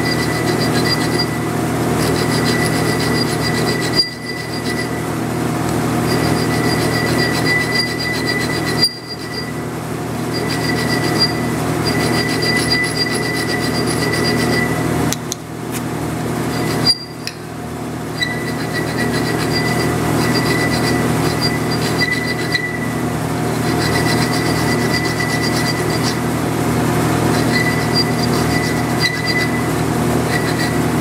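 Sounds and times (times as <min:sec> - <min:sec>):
welding arc buzzing: 0:00.0 - 0:15.1, 0:15.7 - 0:31.0.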